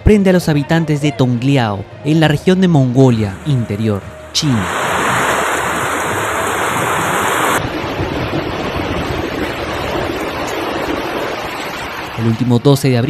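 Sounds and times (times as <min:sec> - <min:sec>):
tornado wind rushing: 0:02.7 - 0:12.4
rain battering microphone: 0:03.0 - 0:13.0.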